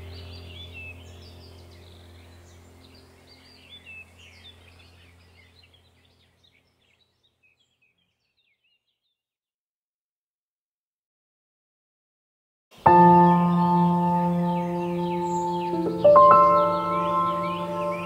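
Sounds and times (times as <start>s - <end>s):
steady low hum: 0.0s - 6.8s, 12.8s - 18.0s
birds chirping: 0.0s - 9.2s, 12.8s - 18.0s.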